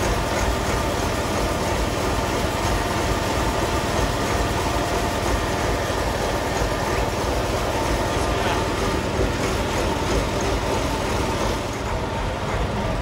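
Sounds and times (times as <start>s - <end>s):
engine droning steadily: 0.0s - 13.0s.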